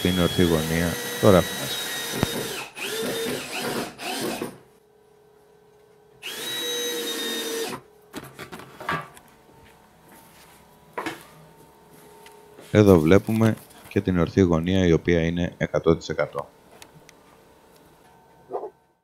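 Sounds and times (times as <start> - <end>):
cordless drill motor whining: 0.0 - 4.6, 6.2 - 7.8.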